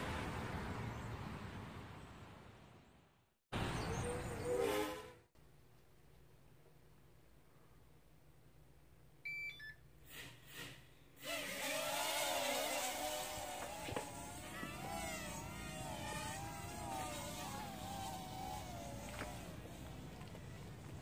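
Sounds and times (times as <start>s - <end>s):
short electronic beeps: 9.3s - 9.8s
quadcopter motors whining: 10.2s - 21.0s.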